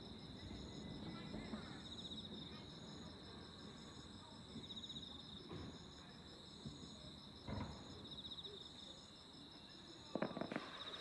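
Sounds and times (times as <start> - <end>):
crickets trilling: 0.0 - 11.0
faint thump: 5.4 - 5.8, 7.4 - 8.0.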